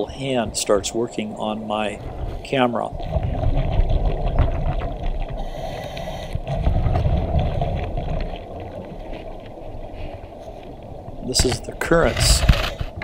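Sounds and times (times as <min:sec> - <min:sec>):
underwater river rushing: 0:00.0 - 0:13.0.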